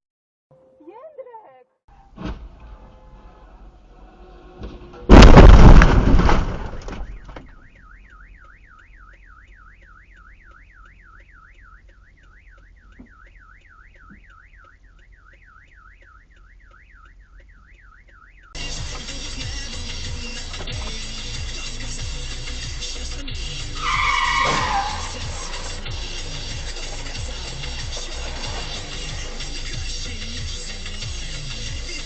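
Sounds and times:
car collision crash: 0:02.0 - 0:03.8, 0:04.4 - 0:07.8, 0:23.8 - 0:29.7
car alarm warbling wail: 0:06.6 - 0:18.7, 0:23.5 - 0:29.6.

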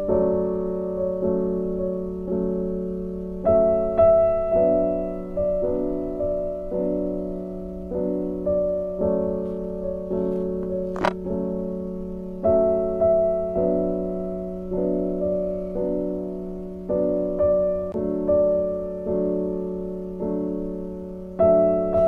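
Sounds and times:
soft piano chords: 0:00.0 - 0:22.0.

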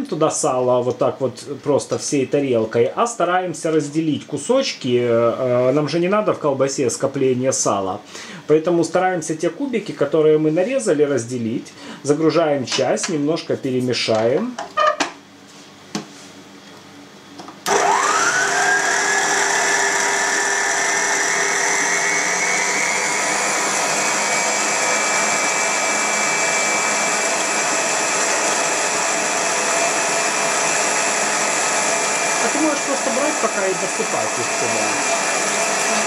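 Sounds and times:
stand mixer motor whining: 0:17.6 - 0:36.0.

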